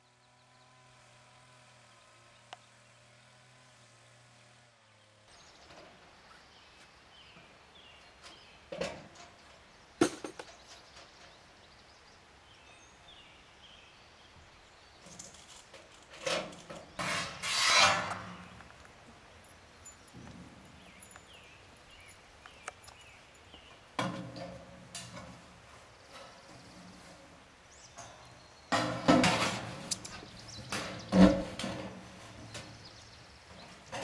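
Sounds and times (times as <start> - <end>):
steel panels clanking and scraping: 15.0 - 18.6, 24.0 - 27.4, 28.0 - 34.0.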